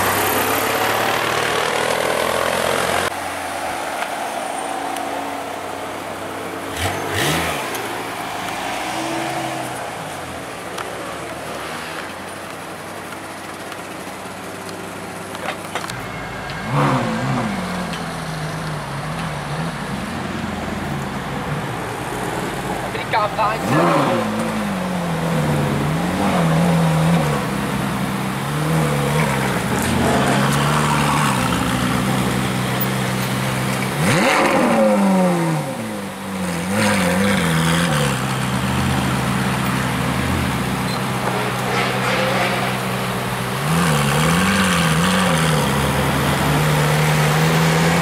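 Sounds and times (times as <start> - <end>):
sports car engine revving: 22.9 - 48.0.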